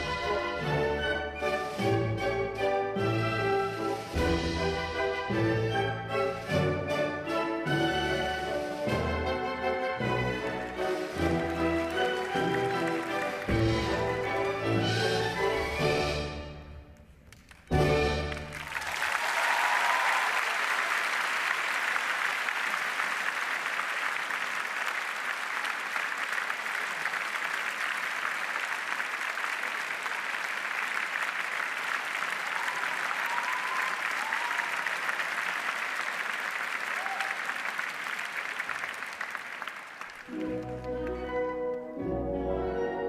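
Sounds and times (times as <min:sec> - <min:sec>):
orchestral music: 0:00.0 - 0:18.9, 0:40.2 - 0:43.0
audience applauding: 0:07.7 - 0:16.0, 0:17.2 - 0:41.9.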